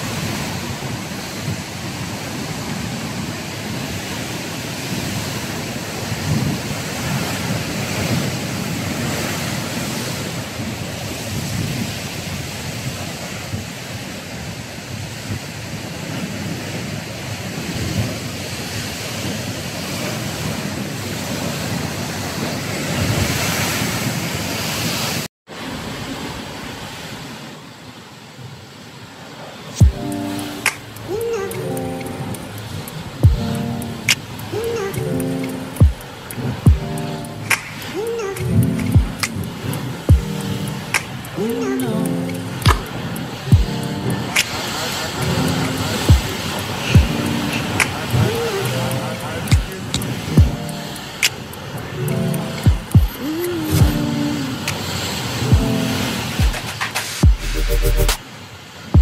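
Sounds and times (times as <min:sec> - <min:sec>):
ocean surf breaking: 0:00.0 - 0:59.0.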